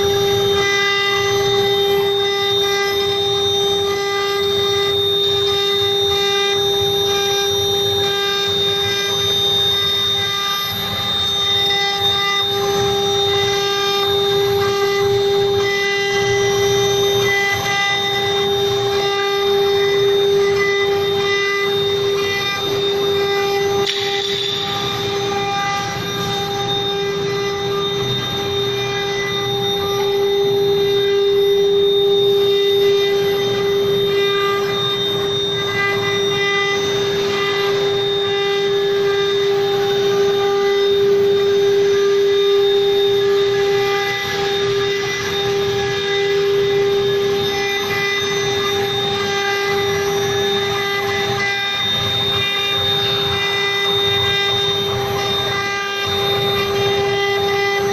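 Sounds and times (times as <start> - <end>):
router spindle whine: 0.0 - 57.9
machine hiss: 8.6 - 37.7.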